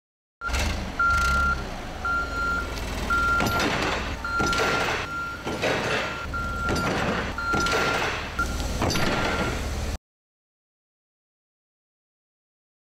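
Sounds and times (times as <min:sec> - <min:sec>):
reversing alarm beeping: 0:00.4 - 0:09.8
low engine rumble: 0:00.4 - 0:10.0.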